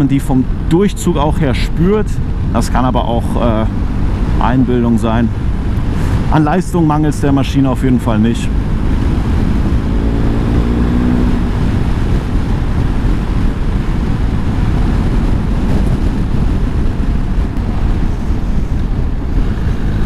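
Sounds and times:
wind rush on microphone: 0.0 - 20.0
motorcycle engine running: 7.8 - 20.0.

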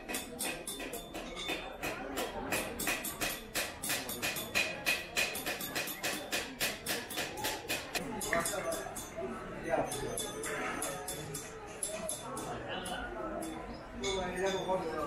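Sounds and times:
hammer tapping metal chisel: 0.0 - 9.2, 9.8 - 14.7.

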